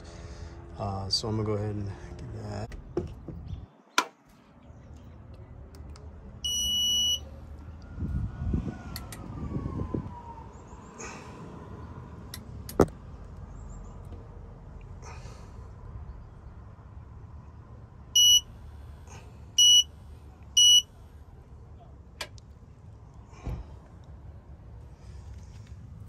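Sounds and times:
torque wrench high beep: 6.5s - 7.2s, 18.2s - 18.4s, 19.6s - 19.9s, 20.6s - 20.9s.

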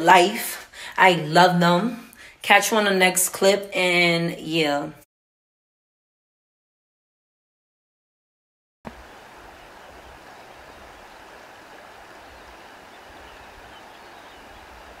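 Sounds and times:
rushing outdoor ambience: 8.9s - 15.0s.

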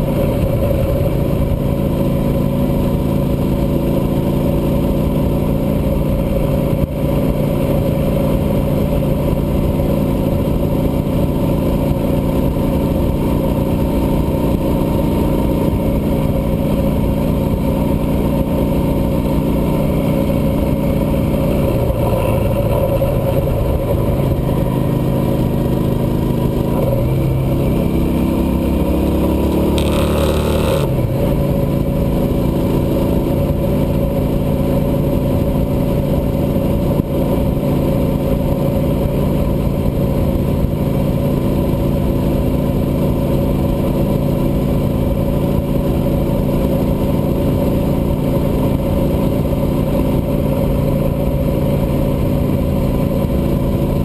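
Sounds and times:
motorcycle engine running: 0.0s - 54.0s
low rumbling noise: 19.4s - 37.6s.

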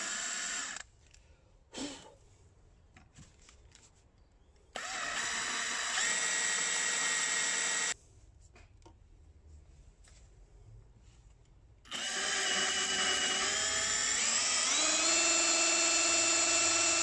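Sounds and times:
electric drill whining: 0.0s - 0.8s, 4.8s - 8.0s, 11.9s - 17.0s.

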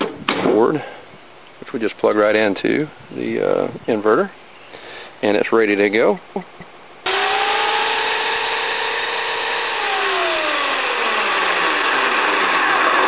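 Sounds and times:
electric chainsaw motor whine: 7.1s - 13.0s.

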